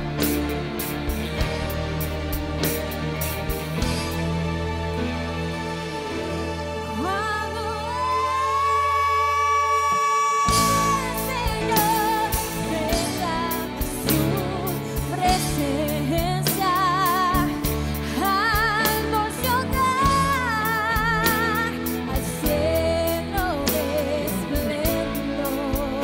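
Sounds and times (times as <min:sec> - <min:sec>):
musical accompaniment with drums: 0:00.0 - 0:06.8, 0:10.5 - 0:26.0
woman singing with vibrato: 0:06.9 - 0:26.0.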